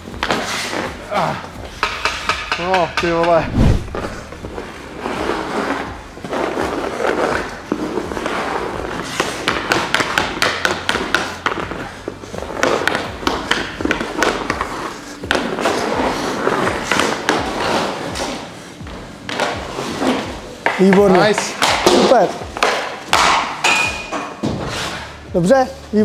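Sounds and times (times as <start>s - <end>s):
skate blades scraping ice: 0.2s - 1.4s, 4.2s - 22.1s
hockey stick tapping puck: 1.8s - 3.4s, 7.3s - 18.4s, 19.2s - 24.2s.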